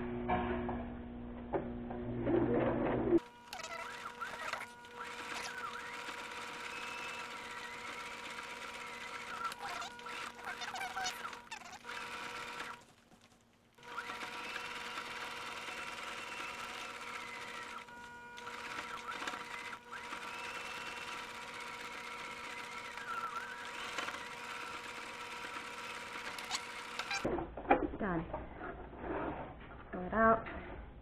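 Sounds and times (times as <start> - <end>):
sewing machine motor whine: 3.2 - 12.8, 13.8 - 27.3.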